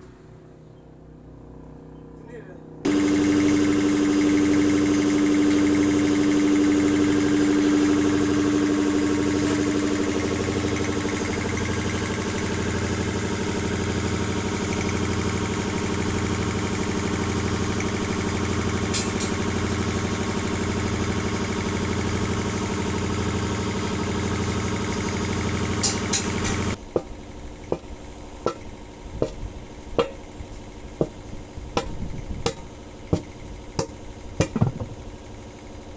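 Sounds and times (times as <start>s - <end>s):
steady hum: 2.4s - 35.7s
air compressor pulsing: 2.9s - 35.9s
hammer striking wheel rim: 18.9s - 19.4s, 25.7s - 35.0s.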